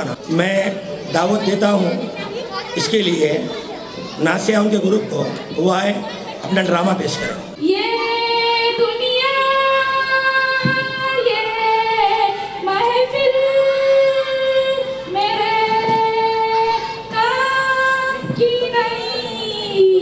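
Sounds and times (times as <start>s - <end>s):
girl singing into a microphone: 7.6s - 20.0s.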